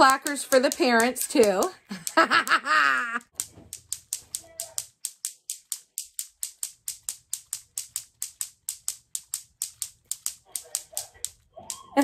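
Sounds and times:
clacker toy balls clacking: 0.0 - 12.0.

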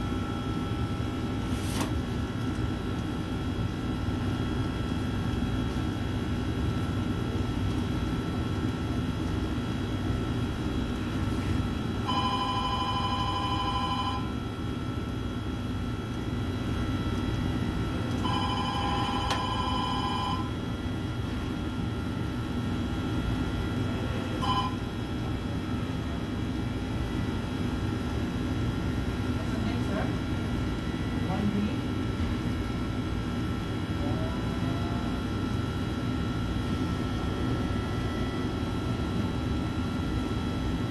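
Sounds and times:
low machine hum: 0.0 - 40.9
telephone ringing: 12.0 - 14.4, 18.2 - 20.6, 24.4 - 24.9.

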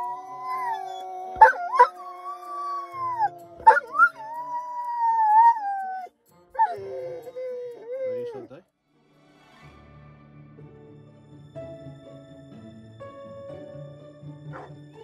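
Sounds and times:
dog howling: 0.0 - 8.5
man howling: 0.0 - 8.5.

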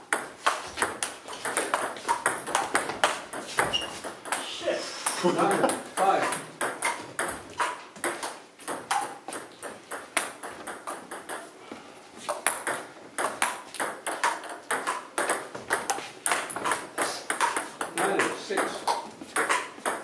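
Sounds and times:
table tennis balls clicking: 0.0 - 11.5, 12.2 - 20.0.

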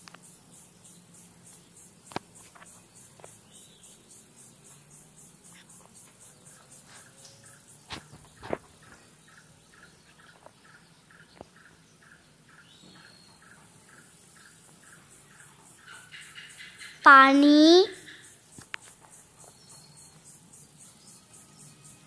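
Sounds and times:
faint ticks: 0.0 - 12.2, 18.0 - 22.0
insects chirping: 0.0 - 22.0.

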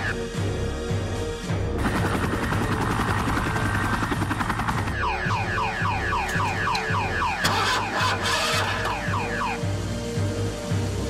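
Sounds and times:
synth film score: 0.0 - 11.0
helicopter rotor chopping: 1.7 - 9.2.

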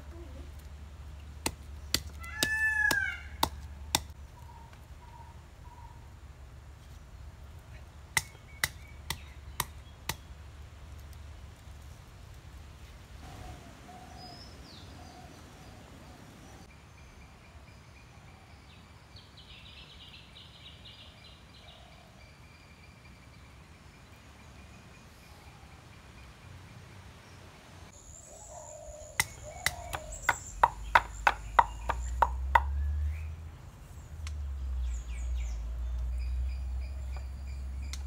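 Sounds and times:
birds chirping faintly: 0.0 - 38.0
wooden pestle pounding in mortar: 29.2 - 32.8.

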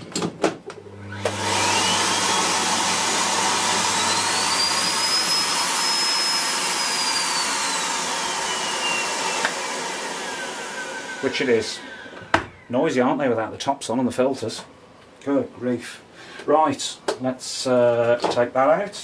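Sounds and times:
vacuum cleaner motor whining: 0.8 - 12.7.

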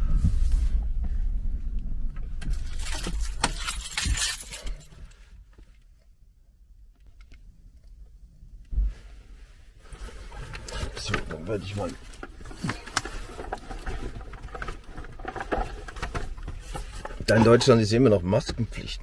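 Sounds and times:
keys jangling: 2.4 - 4.9.

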